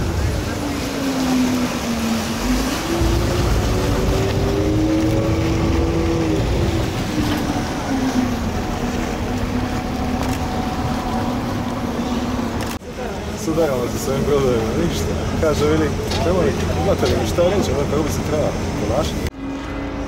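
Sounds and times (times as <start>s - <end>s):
wind noise: 0.0s - 11.7s
boat diesel engine running: 0.0s - 20.0s
water rushing: 0.0s - 20.0s.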